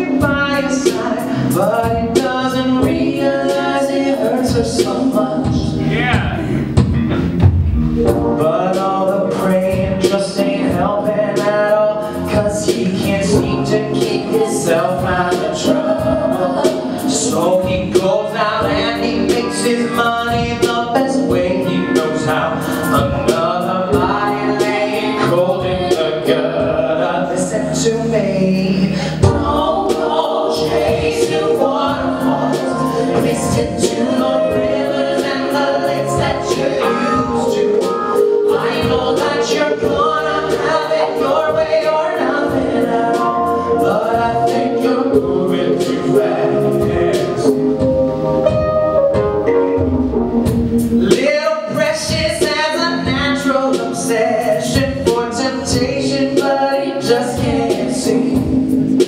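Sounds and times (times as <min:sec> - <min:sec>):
voices singing in harmony: 0:00.0 - 0:07.3, 0:08.0 - 0:48.8, 0:51.0 - 0:59.0
band playing: 0:00.0 - 0:59.0
bass line: 0:00.0 - 0:59.0.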